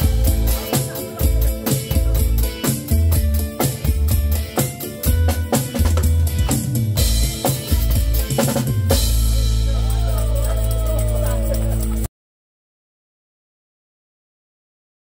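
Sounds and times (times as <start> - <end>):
backing music track: 0.0 - 12.1
drum kit beat: 0.0 - 12.1
cymbal crash: 5.6 - 12.0.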